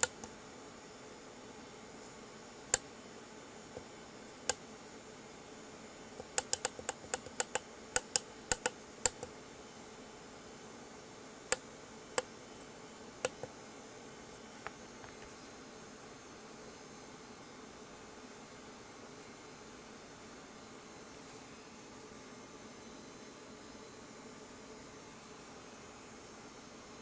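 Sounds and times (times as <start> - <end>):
sharp small clicks: 6.2 - 9.3, 13.2 - 13.5.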